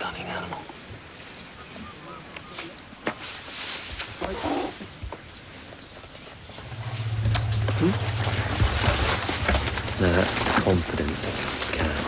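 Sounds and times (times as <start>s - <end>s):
high-pitched insect chorus: 0.0s - 12.0s
low hum: 6.5s - 12.0s.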